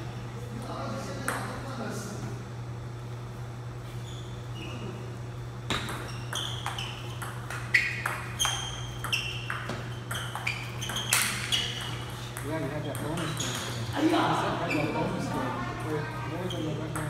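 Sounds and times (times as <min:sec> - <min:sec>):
steady low hum: 0:00.0 - 0:17.0
table tennis ball pinging: 0:05.7 - 0:13.8.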